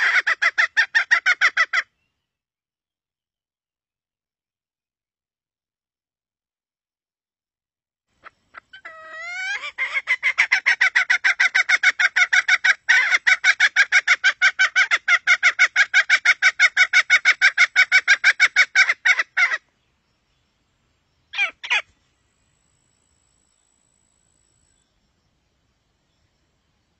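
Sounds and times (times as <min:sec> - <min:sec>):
junglefowl clucking call: 0:00.0 - 0:01.9, 0:08.2 - 0:19.7, 0:21.3 - 0:21.9.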